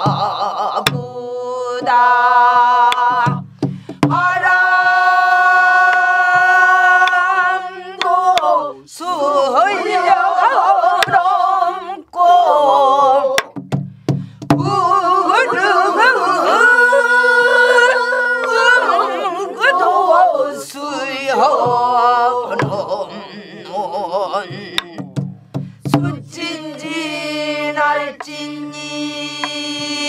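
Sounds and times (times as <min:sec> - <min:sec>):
person singing with heavy vibrato: 0:00.0 - 0:13.6, 0:14.6 - 0:25.2, 0:25.8 - 0:30.0
drum strokes: 0:02.9 - 0:07.2, 0:13.4 - 0:19.8, 0:21.4 - 0:23.2, 0:23.8 - 0:27.2, 0:29.2 - 0:30.0.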